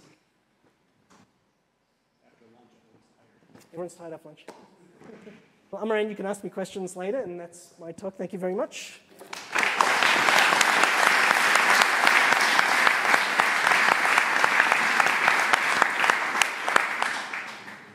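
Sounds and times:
audience applauding: 9.2s - 17.9s.

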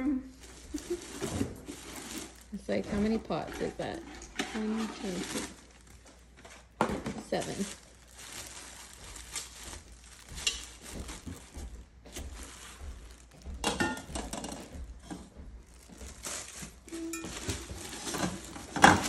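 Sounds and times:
plastic wrapping crinkling: 0.3s - 19.0s
metal cookware clinking: 13.7s - 14.1s.

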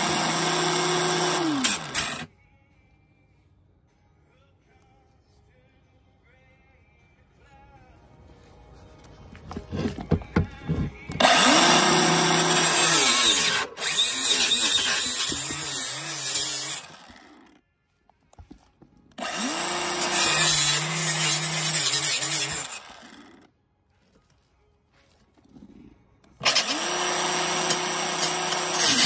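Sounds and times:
circular saw cutting metal: 0.0s - 2.3s, 11.2s - 17.5s, 19.2s - 23.4s, 26.4s - 29.0s.

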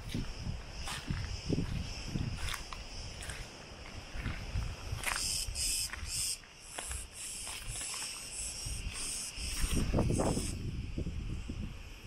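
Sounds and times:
insects shrilling: 0.1s - 12.0s.

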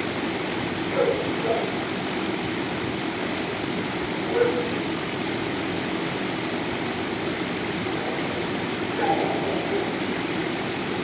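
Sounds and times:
steady ventilation noise: 0.0s - 11.0s
dog barking: 0.9s - 1.8s, 4.3s - 4.8s, 8.9s - 9.9s.

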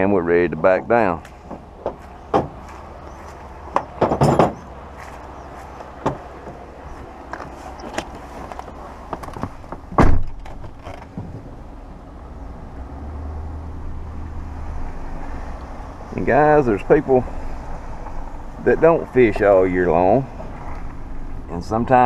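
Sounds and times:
truck door shutting: 7.3s - 11.5s.

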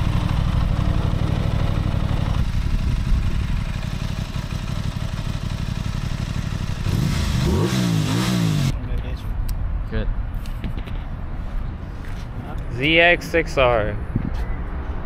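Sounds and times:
motorcycle engine idling and revving: 0.0s - 8.8s.

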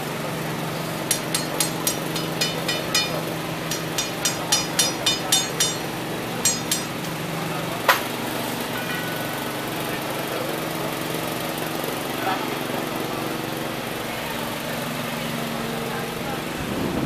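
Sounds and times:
engine hum: 0.0s - 17.0s
metal tool tapping on metal: 1.1s - 7.2s
sharp metal clank: 1.1s - 7.2s.

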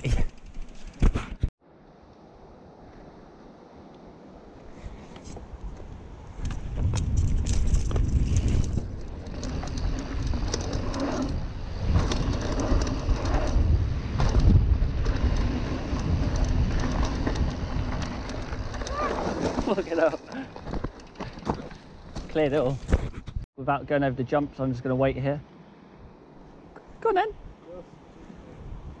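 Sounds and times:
bike tyres rumbling over dirt: 6.3s - 23.4s.

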